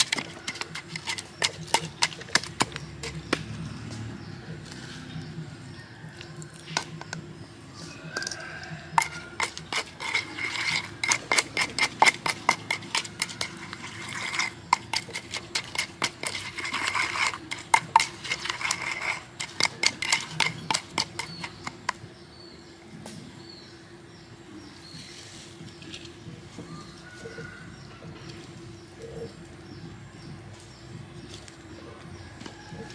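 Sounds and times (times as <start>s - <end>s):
pestle pounding in wooden mortar: 0.0s - 3.6s, 8.2s - 22.4s.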